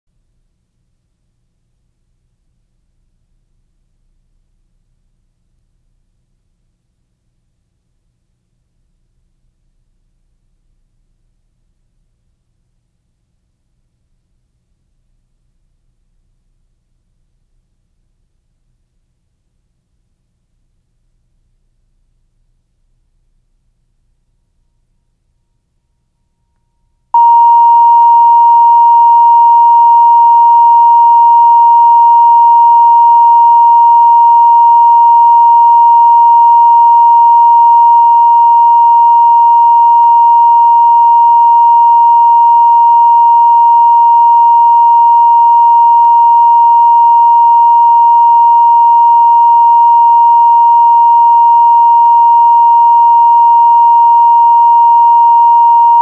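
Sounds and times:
steady test tone beep: 27.2 - 56.0.

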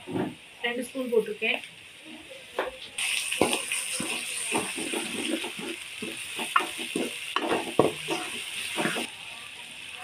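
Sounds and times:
onions sizzling in oil: 0.5 - 10.0
spoon scraping pot: 3.4 - 9.1.

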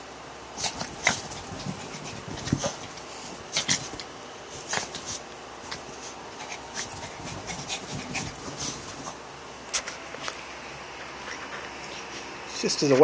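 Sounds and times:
dog scuffing and rustling on bedding: 0.6 - 10.0.

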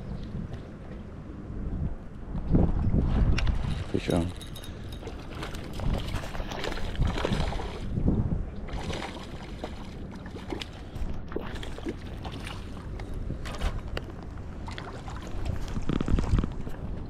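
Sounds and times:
wind rumble on microphone: 0.0 - 17.0
fish splashing in water: 5.1 - 8.0.

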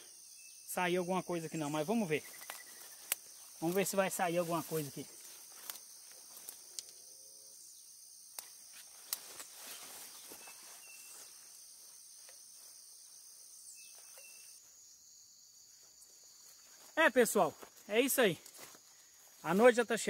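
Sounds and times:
high-pitched insect chorus: 0.0 - 20.0
clicks and rustles in grass: 1.6 - 7.0, 8.3 - 12.8, 15.8 - 19.8.

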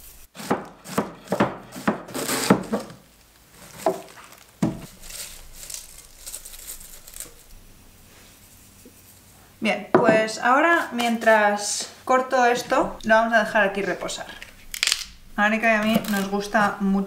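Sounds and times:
cabbage rustling and crunching: 2.1 - 8.8, 15.8 - 16.8.

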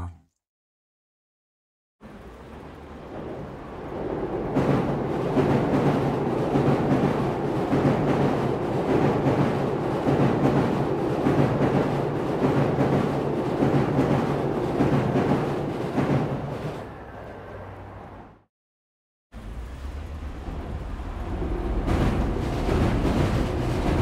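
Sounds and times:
train rumbling over viaduct: 2.1 - 18.4, 19.4 - 24.0
train wheel clacks: 21.4 - 24.0.

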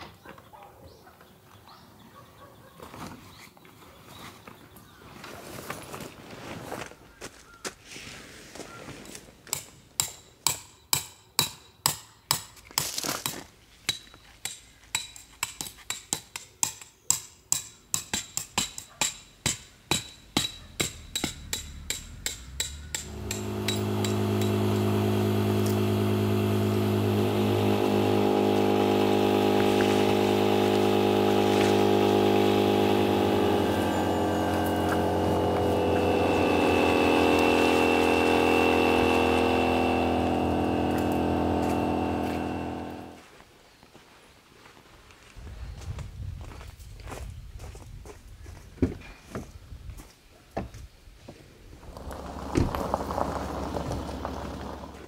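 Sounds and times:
hammer striking metal tent pegs: 13.9 - 24.6
electric air pump humming: 20.5 - 43.2.

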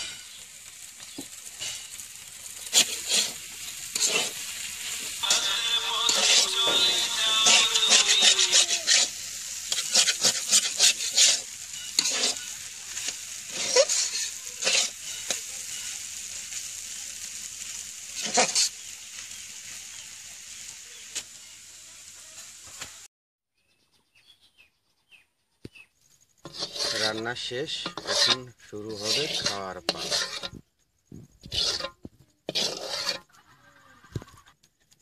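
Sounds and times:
metal spatula scraping wok: 0.0 - 19.8, 26.4 - 30.6, 31.2 - 33.4
noodles sizzling in oil: 0.0 - 23.1, 26.4 - 33.5.

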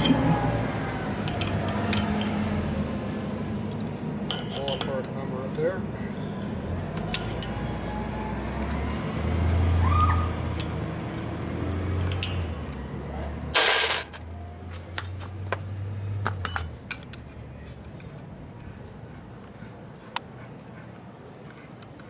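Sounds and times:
hand tools clinking on metal: 3.7 - 5.4, 12.0 - 12.5, 13.6 - 14.3, 16.4 - 17.2.

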